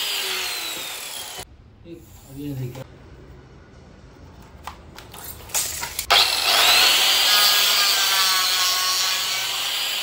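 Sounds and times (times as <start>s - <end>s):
electric cutter motor whining: 0.0s - 1.4s, 6.1s - 10.0s.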